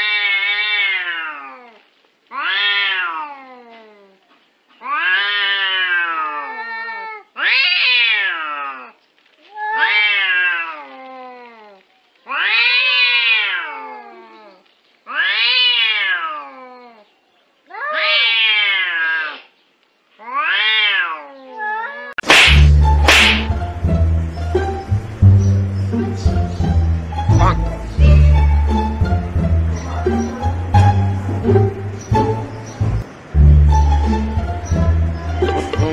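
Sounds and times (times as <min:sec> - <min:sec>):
cats yowling: 0:00.0 - 0:04.2, 0:04.8 - 0:17.1, 0:17.7 - 0:19.5, 0:20.2 - 0:22.2
sudden sharp crack: 0:22.2 - 0:23.6.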